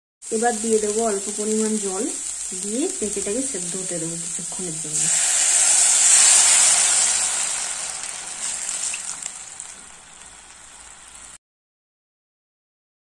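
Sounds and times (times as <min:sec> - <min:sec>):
water sizzling in hot oil: 0:00.2 - 0:11.4.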